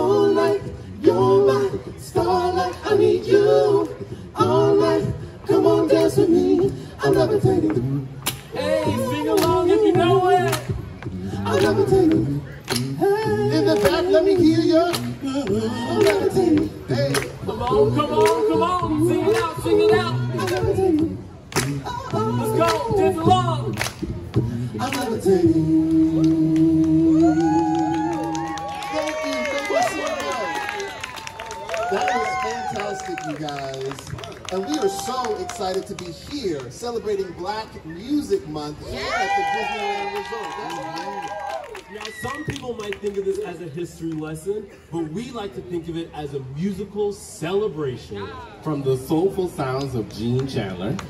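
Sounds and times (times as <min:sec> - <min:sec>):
a cappella group singing harmony: 0:00.0 - 0:28.7.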